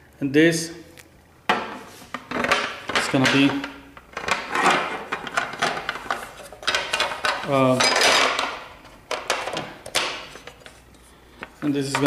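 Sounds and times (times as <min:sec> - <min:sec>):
metal bolt and washer clinking: 0:06.6 - 0:10.0.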